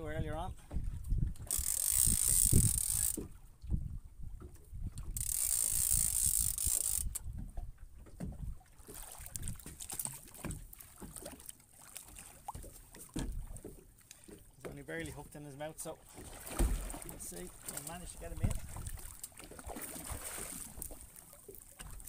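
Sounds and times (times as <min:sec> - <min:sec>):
fishing reel whirring: 0:01.4 - 0:03.3, 0:05.0 - 0:07.2.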